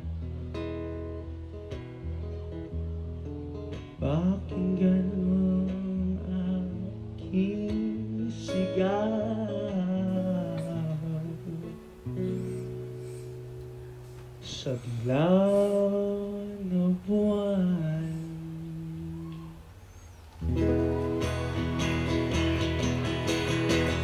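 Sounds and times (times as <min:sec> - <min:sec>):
strummed acoustic guitar: 0:00.0 - 0:19.2, 0:20.4 - 0:24.0
young man singing pop ballad: 0:04.0 - 0:12.0, 0:14.4 - 0:19.6.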